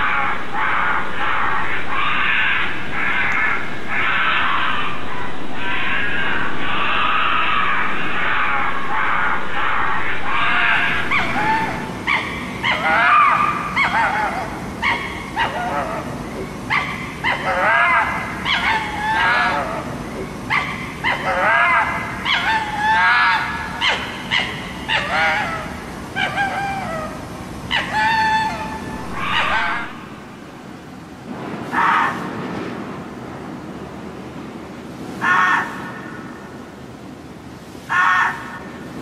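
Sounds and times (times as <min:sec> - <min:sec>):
fox barking: 0:00.0 - 0:30.6, 0:35.2 - 0:36.4, 0:37.9 - 0:38.7.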